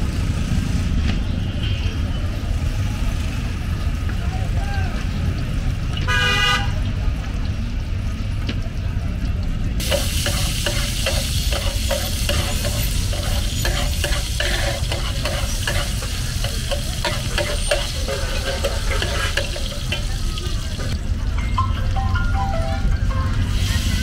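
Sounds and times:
hot oil sizzling: 0.0s - 1.0s, 2.0s - 24.0s
metal spatula scraping and tapping: 9.8s - 20.2s.

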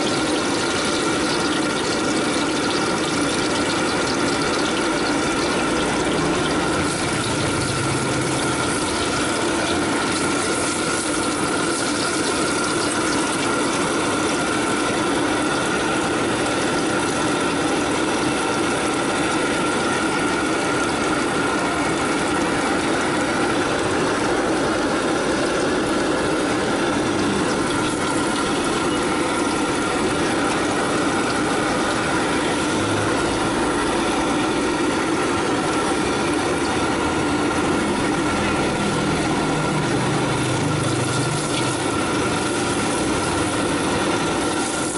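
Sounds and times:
food sizzling in oil: 0.0s - 44.9s
gas burner flame hissing: 0.0s - 44.9s.

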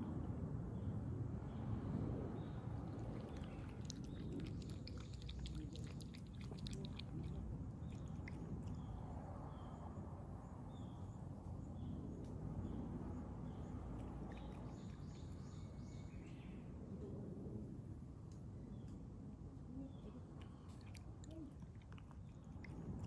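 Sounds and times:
cat lapping milk: 2.7s - 8.9s, 13.8s - 15.6s, 20.4s - 23.0s
cat chewing dry kibble: 2.8s - 8.8s, 13.9s - 15.4s, 20.5s - 23.0s.

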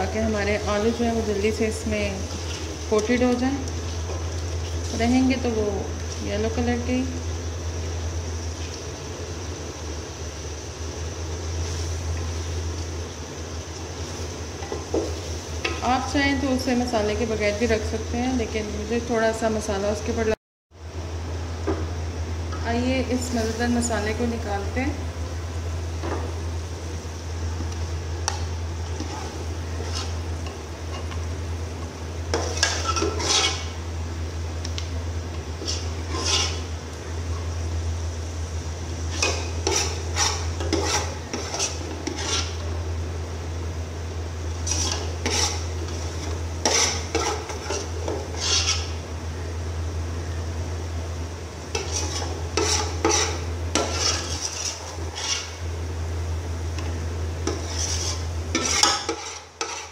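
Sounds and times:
steady low hum: 0.0s - 59.9s
metal spoon scraping a pot: 28.8s - 31.2s, 32.3s - 33.8s, 35.6s - 36.7s, 39.1s - 42.6s, 44.6s - 49.0s, 51.7s - 55.6s, 57.4s - 59.9s.

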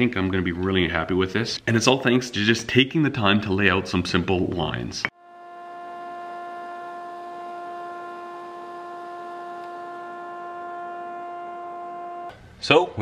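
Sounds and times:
belt grinder humming: 5.1s - 12.3s.

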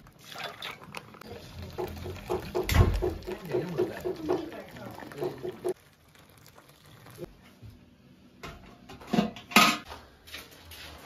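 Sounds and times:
dishes and pots clattering: 8.4s - 9.9s.

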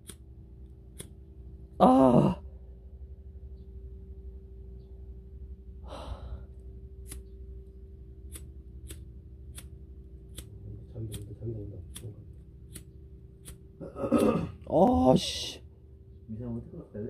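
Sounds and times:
faint steady hum: 0.0s - 17.0s
person sighing: 1.8s - 2.5s, 5.8s - 6.5s
flint lighter clicking: 8.3s - 9.7s.

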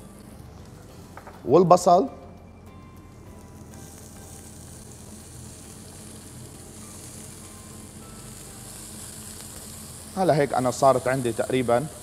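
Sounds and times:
onion and garlic sizzling in pan: 3.0s - 12.0s.

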